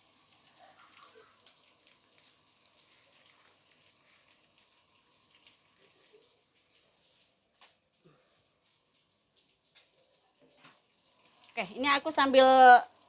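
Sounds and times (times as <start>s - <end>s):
food deep-frying in hot oil: 0.0s - 13.0s.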